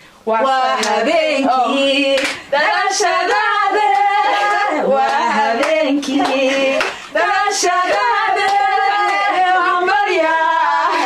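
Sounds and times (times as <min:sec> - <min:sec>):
women singing together: 0:00.2 - 0:11.0
hand clapping: 0:00.8 - 0:01.0, 0:02.2 - 0:02.4, 0:03.3 - 0:07.1, 0:07.7 - 0:09.8.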